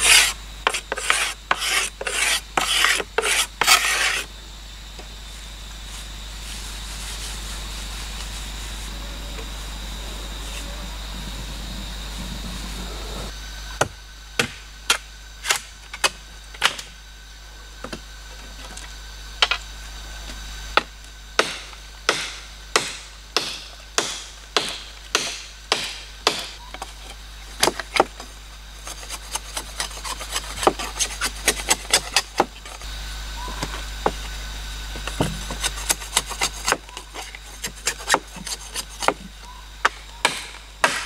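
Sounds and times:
blade scraping wood: 0.0 - 4.3, 26.8 - 32.9, 35.0 - 39.3
machete chopping wood: 13.8 - 16.9, 21.4 - 26.6, 39.8 - 41.0.

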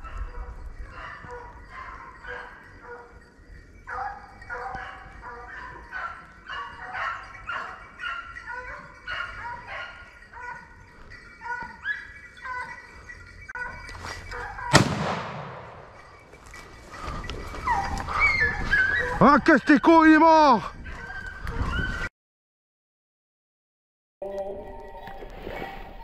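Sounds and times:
hounds baying: 0.0 - 14.8, 15.7 - 22.1
gunshot: 14.7 - 16.0.

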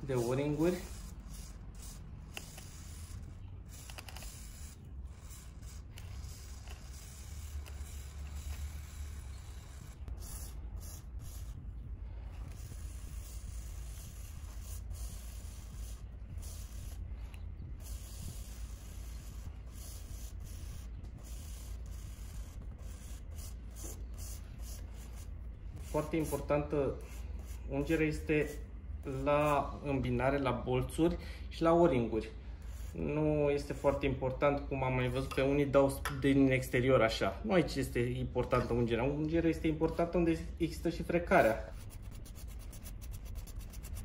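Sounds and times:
steady low hum: 0.0 - 35.8, 36.4 - 44.0
spray can hissing: 0.1 - 11.6, 12.2 - 29.6, 32.6 - 33.0.

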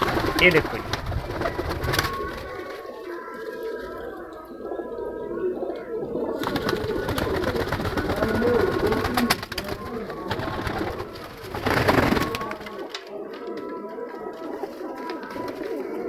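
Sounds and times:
pigeons cooing: 0.0 - 16.0.

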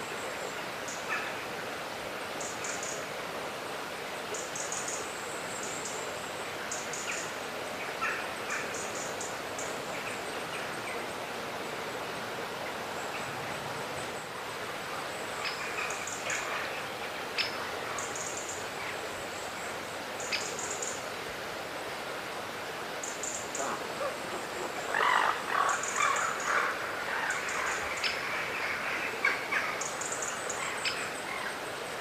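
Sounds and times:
steady background hiss: 0.0 - 32.0
bird calls and chirps: 15.4 - 19.0.

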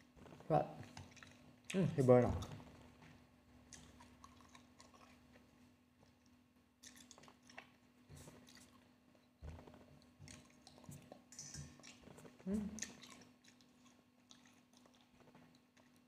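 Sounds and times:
person chewing: 0.8 - 1.8, 3.7 - 8.9, 9.6 - 16.0.

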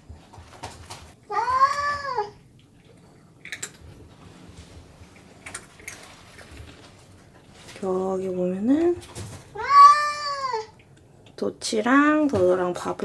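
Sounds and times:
cat meowing: 1.3 - 2.4, 9.5 - 10.7.

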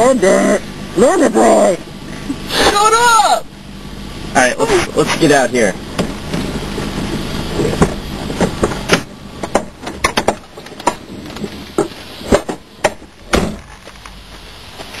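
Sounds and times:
steady rumble: 0.0 - 15.0
bodies bumping car interior: 4.9 - 14.4.

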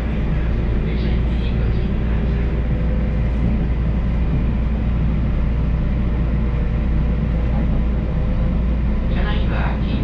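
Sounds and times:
wheels rumbling on rail: 0.0 - 10.0.

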